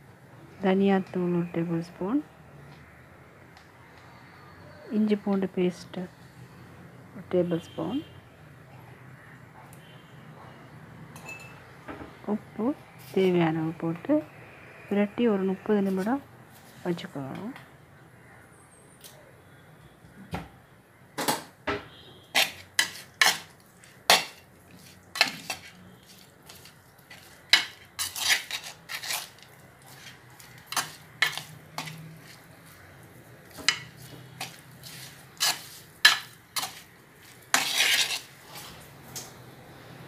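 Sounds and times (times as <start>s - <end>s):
spoon clinking against a bowl: 11.2s - 11.6s.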